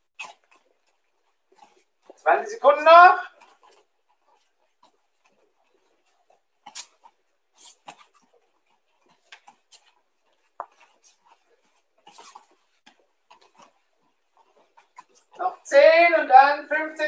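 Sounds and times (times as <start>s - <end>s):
bare feet thudding on mats: 3.3s - 15.5s.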